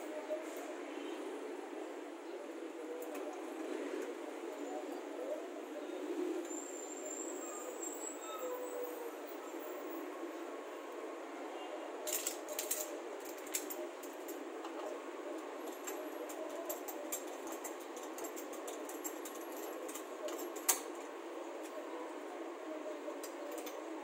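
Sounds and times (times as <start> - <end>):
steady background noise: 0.0 - 24.0
small metallic clicks and clinks: 12.1 - 14.8, 15.7 - 21.0.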